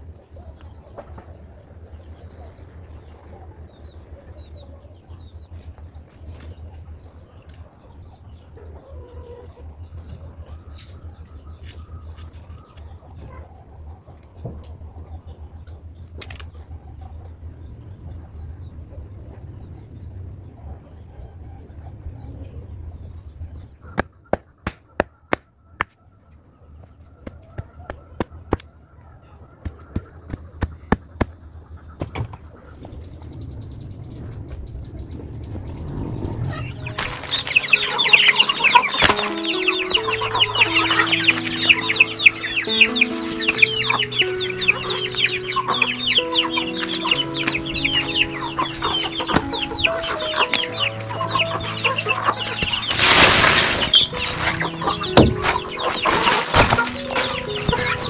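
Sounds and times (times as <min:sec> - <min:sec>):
insects droning: 0:00.0 - 0:58.0
low outdoor rumble: 0:30.0 - 0:39.2.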